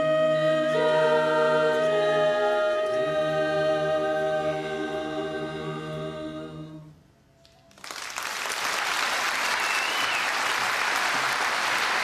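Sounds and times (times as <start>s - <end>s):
choir holding a chord: 0.0s - 7.0s
audience applause: 7.7s - 12.0s.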